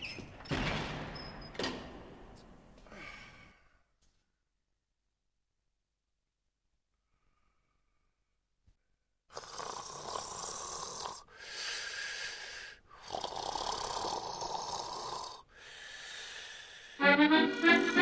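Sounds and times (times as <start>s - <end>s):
man snoring: 9.3s - 16.9s.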